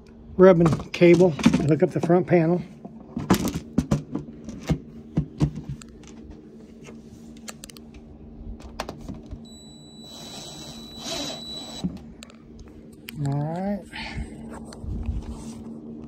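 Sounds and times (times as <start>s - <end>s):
faint high steady whine: 9.4s - 16.0s.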